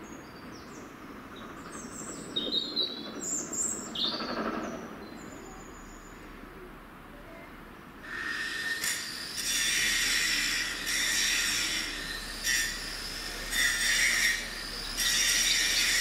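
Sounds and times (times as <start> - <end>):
small birds chirping: 0.1 - 6.2
steam locomotive rumble: 0.2 - 7.0, 7.6 - 16.0.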